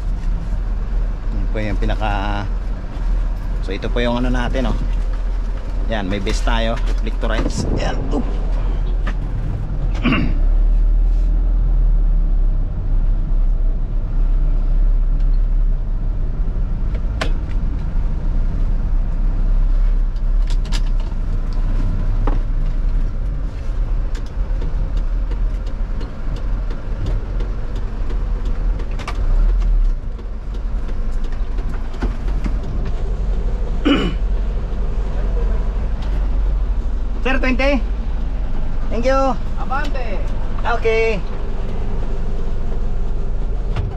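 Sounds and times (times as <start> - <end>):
diesel truck engine rumbling: 0.0 - 43.9.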